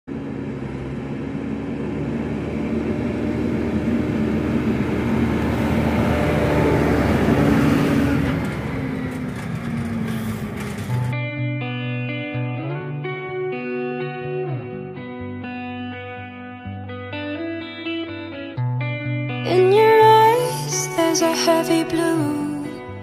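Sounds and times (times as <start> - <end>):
tractor engine driving past: 0.1 - 11.2.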